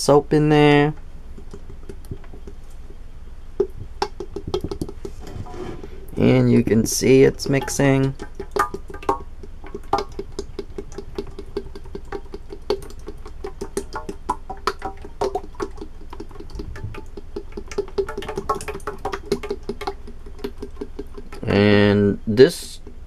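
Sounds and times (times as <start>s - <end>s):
dish soap draining into pot: 6.1s - 21.6s.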